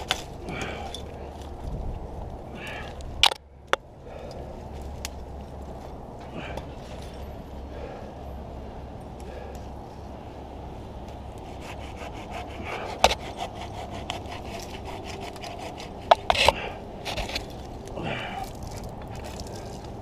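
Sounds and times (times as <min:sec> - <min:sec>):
hand saw cutting branch: 0:11.3 - 0:17.5
wood cracking: 0:12.8 - 0:20.0.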